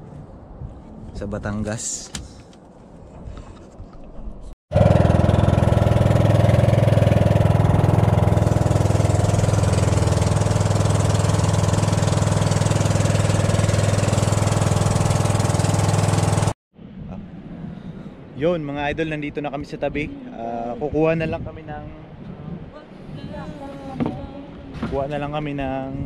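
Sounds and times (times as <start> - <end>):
boat engine running: 4.7 - 16.6.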